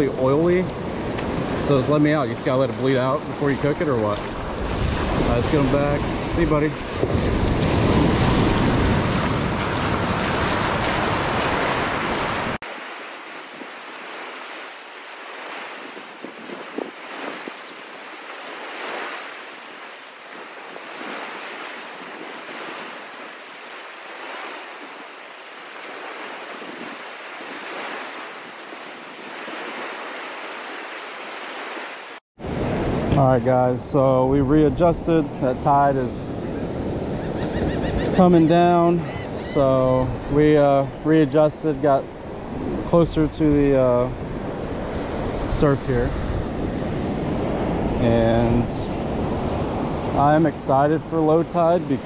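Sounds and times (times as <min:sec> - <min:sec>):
ocean surf washing in: 0:00.0 - 0:39.1, 0:39.7 - 0:52.0
wind buffeting microphone: 0:02.4 - 0:12.6, 0:13.4 - 0:18.8.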